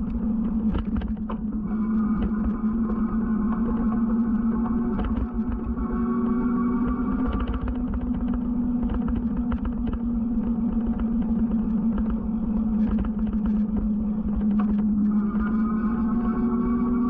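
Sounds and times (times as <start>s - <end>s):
small rattles and clicks: 0.0s - 17.0s
steady low hum: 0.0s - 17.0s.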